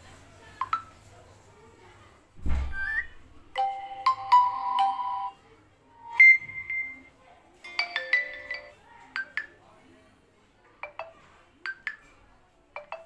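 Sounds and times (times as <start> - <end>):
phone notification tones: 0.6 - 1.0, 3.6 - 5.4, 6.0 - 7.1, 7.7 - 9.5, 10.8 - 12.1, 12.8 - 13.0
low thump: 2.4 - 2.8.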